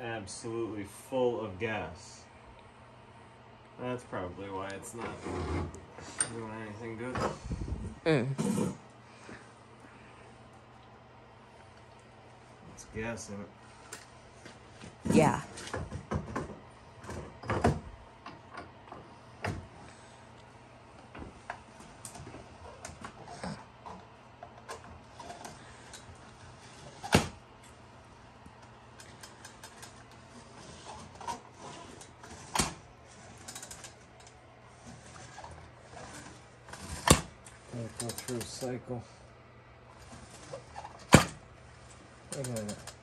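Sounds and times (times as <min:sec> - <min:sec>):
hand tools and engine parts clicking: 0:42.3 - 0:43.0.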